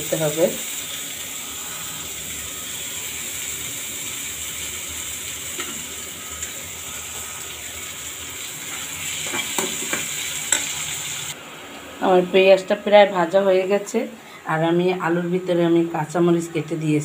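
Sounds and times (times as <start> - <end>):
onions sizzling in oil: 0.0 - 11.4.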